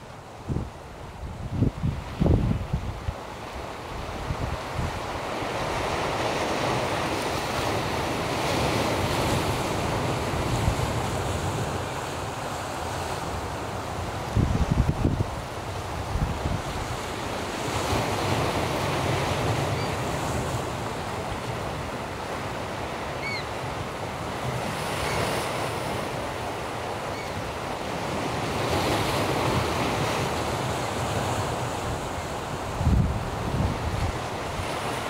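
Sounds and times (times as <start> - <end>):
sea surf breaking: 0.0 - 35.0
wind buffeting microphone: 0.4 - 3.2, 14.2 - 17.1, 29.4 - 34.9.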